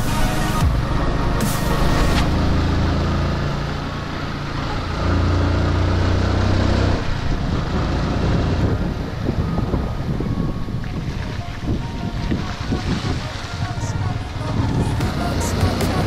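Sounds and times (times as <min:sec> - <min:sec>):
motorcycle engine running: 0:00.0 - 0:11.3
wind rushing on microphone: 0:06.3 - 0:16.0.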